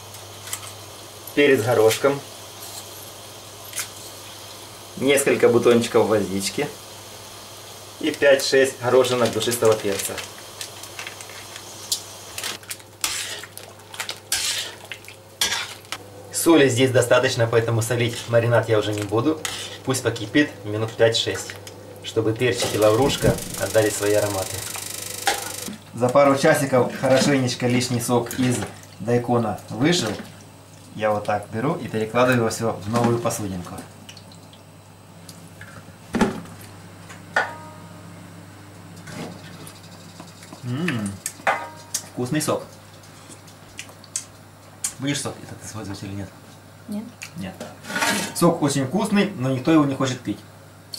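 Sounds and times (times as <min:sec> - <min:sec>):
low steady hum: 0:03.2 - 0:47.4
metal spoon scraping a pot: 0:13.0 - 0:13.5, 0:14.3 - 0:14.8, 0:19.4 - 0:19.9.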